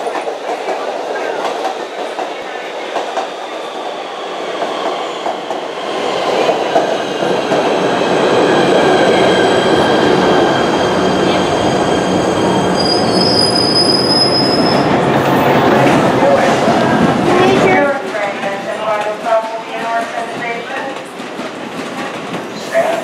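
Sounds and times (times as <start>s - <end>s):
train wheels rumbling and squealing: 0.0s - 23.0s
sharp high squeal: 12.0s - 14.9s.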